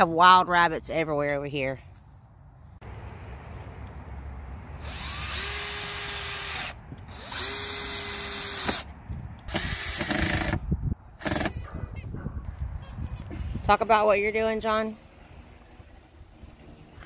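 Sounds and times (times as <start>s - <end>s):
cordless drill driving screws: 4.8s - 8.9s, 9.5s - 10.6s, 11.2s - 11.6s.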